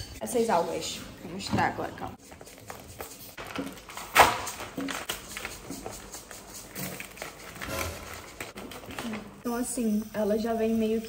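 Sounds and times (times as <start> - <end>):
paper-like rustles: 2.2 - 9.4.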